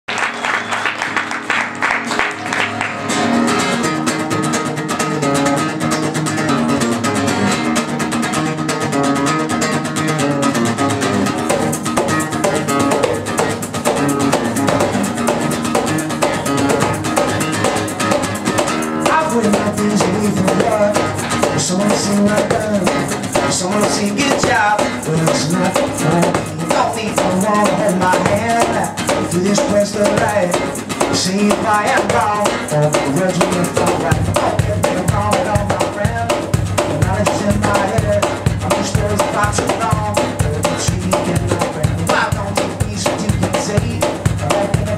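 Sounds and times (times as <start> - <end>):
acoustic guitar strumming: 0.1 - 44.9
cajon slapped by hand: 11.3 - 44.9.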